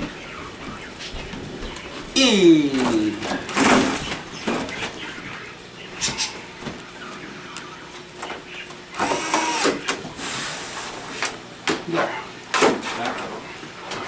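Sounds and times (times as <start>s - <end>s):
electric screwdriver whirring: 9.0s - 9.8s.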